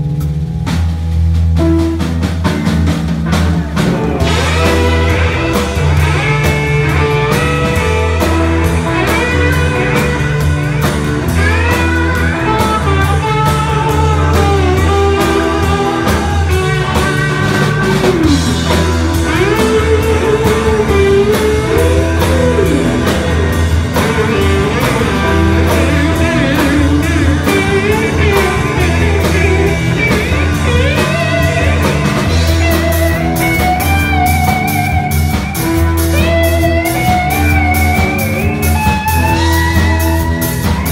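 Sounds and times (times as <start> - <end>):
bass guitar: 0.0 - 40.9
drums: 0.0 - 40.9
electric guitar lead: 0.0 - 40.9.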